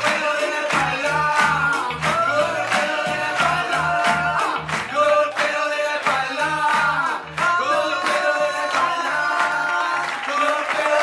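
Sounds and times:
steady bass beat: 0.0s - 5.3s, 6.0s - 9.0s
person singing: 0.0s - 11.0s.

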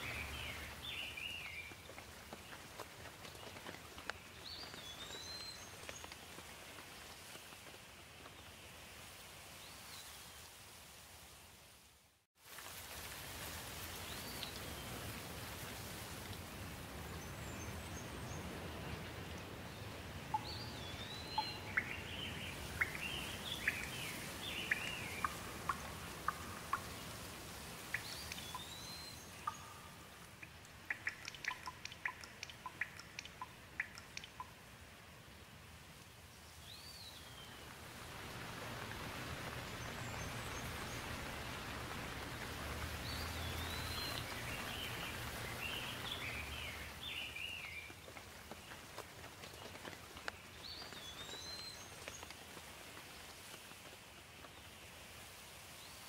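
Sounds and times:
birds chirping: 0.0s - 6.3s, 20.2s - 34.6s, 36.6s - 48.0s
sharp drips and splashes: 0.0s - 10.8s, 12.4s - 56.0s
steady rain falling: 0.0s - 56.0s.

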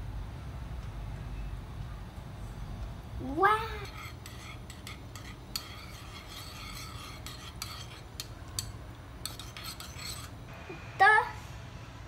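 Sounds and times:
steady low hum: 0.0s - 12.0s
eggs beaten in ceramic bowl: 3.5s - 10.4s.

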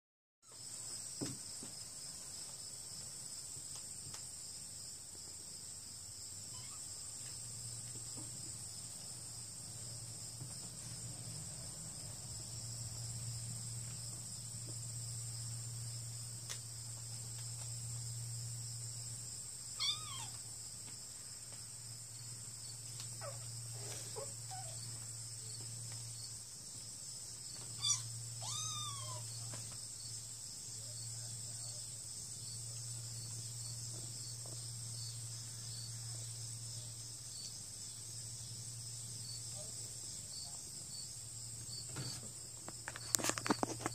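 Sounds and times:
kittens mewing: 19.8s - 20.4s, 27.7s - 29.3s.

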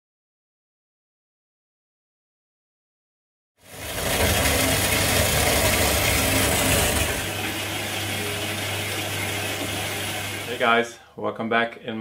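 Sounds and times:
band saw motor hum: 3.7s - 10.6s.

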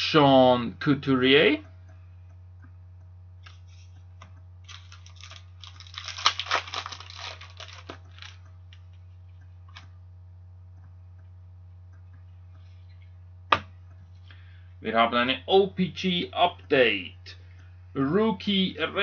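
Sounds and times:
plastic card sleeve crinkling: 4.6s - 9.0s.

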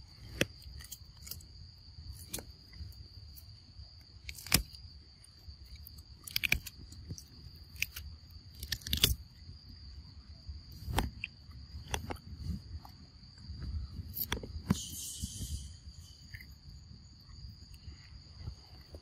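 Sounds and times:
crickets droning: 0.0s - 19.0s
monkeys crunching fruit: 5.6s - 9.2s.

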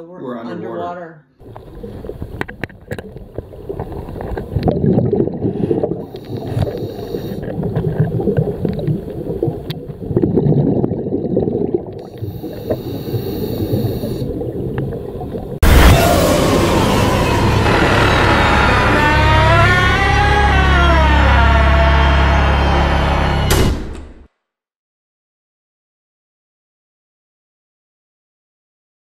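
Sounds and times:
underwater clicks: 1.4s - 5.2s, 6.1s - 10.6s
underwater rumbling and gurgling: 1.4s - 22.0s
high hiss: 6.1s - 7.4s
loud rush of sound: 15.6s - 23.5s.

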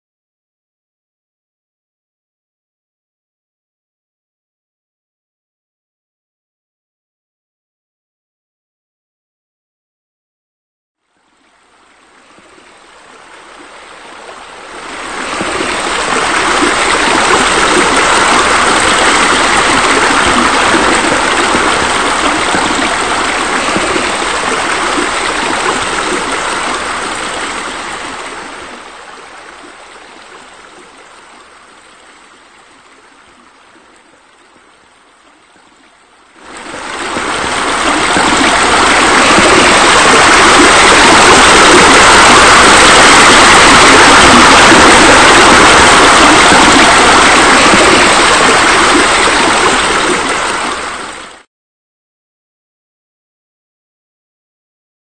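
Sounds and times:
water splashing into pool: 14.5s - 29.8s, 36.4s - 51.4s.

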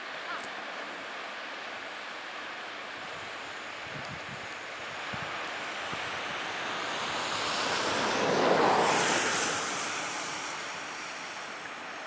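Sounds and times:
river water rushing: 0.0s - 12.0s
vehicle passing by: 5.8s - 11.7s.

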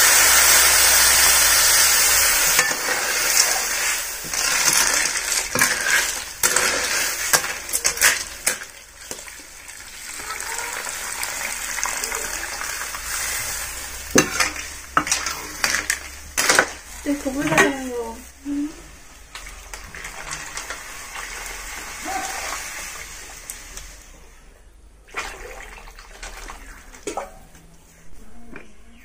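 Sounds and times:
water pouring and splashing: 0.0s - 18.2s, 19.0s - 24.1s, 25.0s - 27.5s
ladle scraping metal wok: 0.6s - 9.5s, 10.8s - 18.2s.

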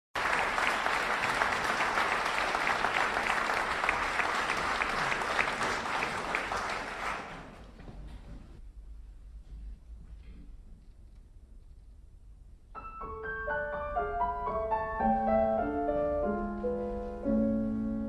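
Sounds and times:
audience applauding: 0.2s - 7.8s.

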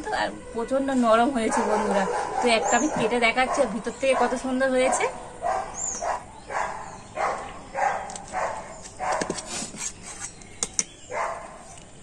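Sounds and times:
dog barking: 1.4s - 9.3s, 11.1s - 11.6s.

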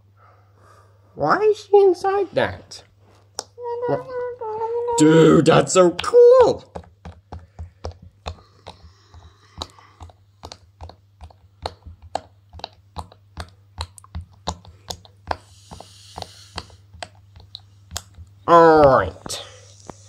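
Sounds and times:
fidget toy bubbles popping: 4.9s - 20.0s.

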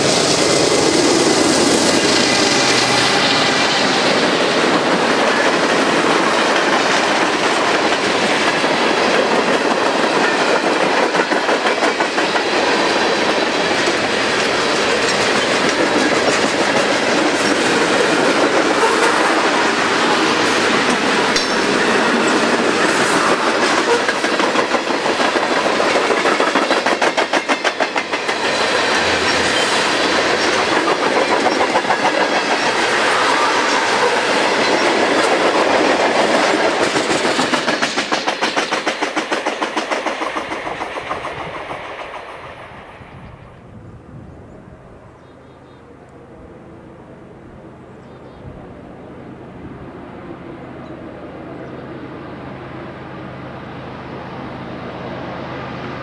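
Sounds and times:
steel wheels clattering on rails: 0.0s - 42.6s
freight train rolling past: 0.0s - 56.0s.

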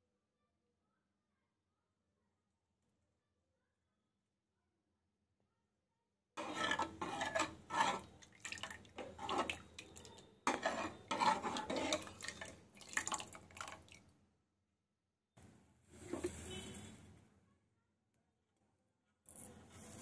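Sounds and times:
metal ladle scraping pot: 6.4s - 13.2s, 16.0s - 16.8s
thick liquid sloshing: 6.4s - 14.0s.

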